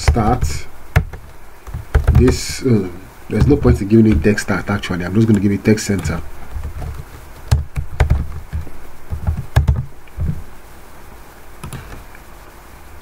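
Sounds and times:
computer keyboard typing: 0:00.0 - 0:02.6, 0:05.3 - 0:10.4.

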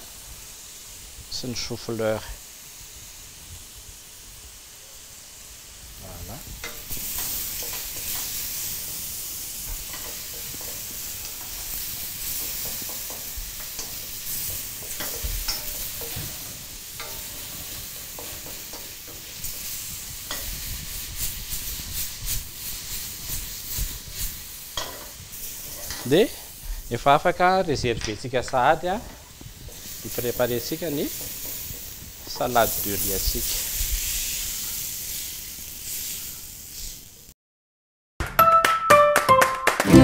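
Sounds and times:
shrimp sizzling in oil: 0:00.0 - 0:37.3
utensil scraping wok: 0:05.9 - 0:26.9, 0:28.6 - 0:37.0.

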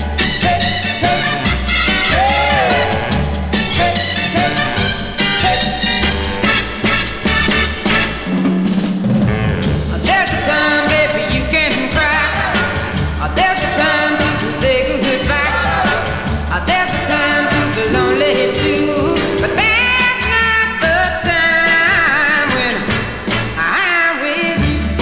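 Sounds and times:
loud music with singing: 0:00.0 - 0:07.1, 0:09.9 - 0:25.0
steady bass line: 0:14.6 - 0:23.1.

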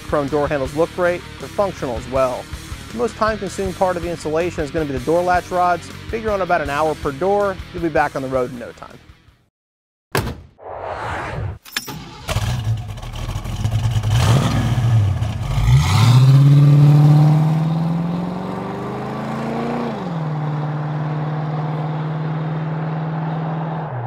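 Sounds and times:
car engine revving: 0:12.2 - 0:24.0.

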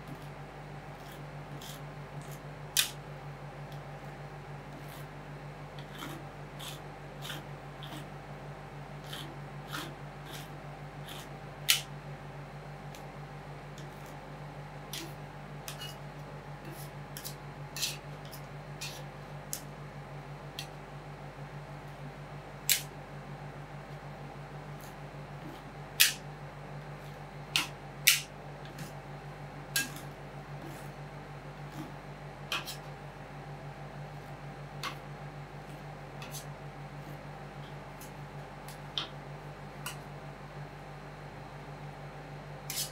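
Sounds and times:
low machine hum: 0:00.0 - 0:42.9
metal spatulas scraping steel plate: 0:15.7 - 0:16.0, 0:16.7 - 0:19.0, 0:29.8 - 0:30.9, 0:42.7 - 0:42.9.

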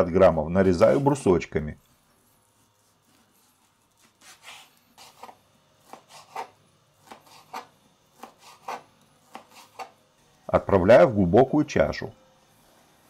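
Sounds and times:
knife slicing on plastic board: 0:04.0 - 0:10.0.

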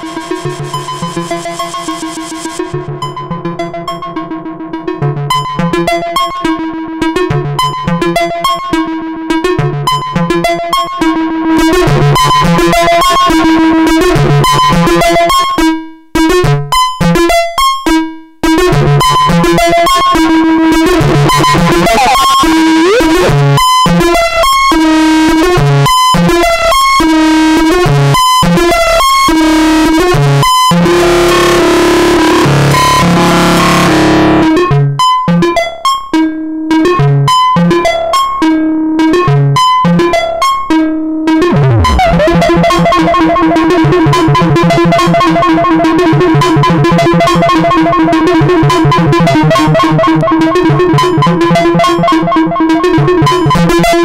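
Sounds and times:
distorted synthesizer pattern: 0:00.0 - 0:03.9, 0:19.9 - 0:23.7, 0:30.4 - 0:34.6, 0:41.4 - 0:54.0.

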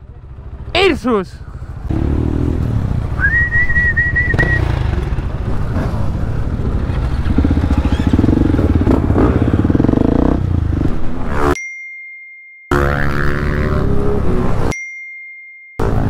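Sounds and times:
motorcycle engine running: 0:00.0 - 0:03.3, 0:04.0 - 0:11.5
high steady whistle: 0:03.2 - 0:04.7.

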